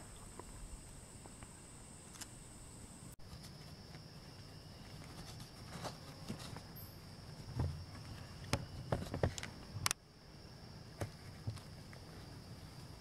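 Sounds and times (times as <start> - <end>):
insects trilling: 0.0 - 13.0
small ticks and rustles: 3.2 - 10.0, 11.0 - 13.0.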